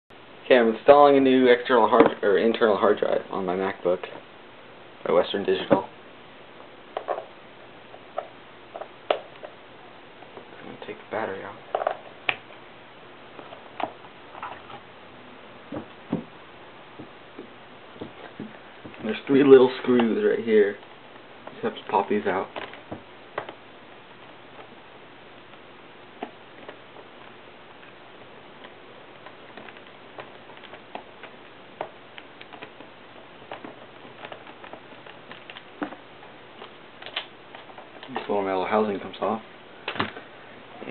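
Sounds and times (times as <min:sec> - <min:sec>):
steady hiss: 0:00.1 - 0:40.9.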